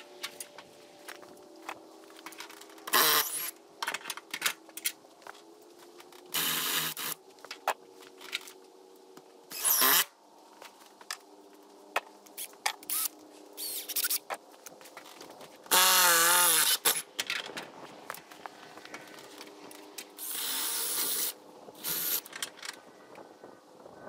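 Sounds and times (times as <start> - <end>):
power drill bursts: 9.5 - 10.1.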